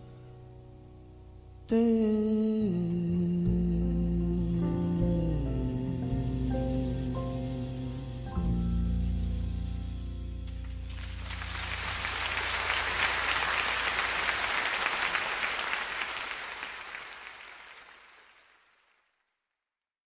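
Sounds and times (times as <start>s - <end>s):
jazz band low notes: 0.0s - 14.4s
audience applauding: 10.8s - 19.1s.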